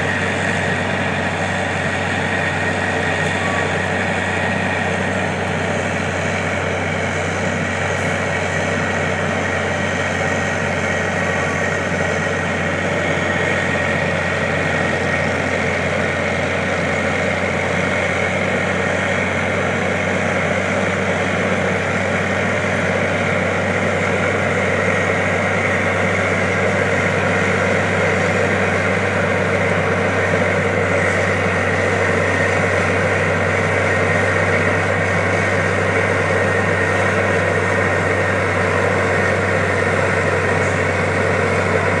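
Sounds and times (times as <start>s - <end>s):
cutting drum grinding asphalt: 0.0s - 42.0s
diesel engine drone: 0.0s - 42.0s.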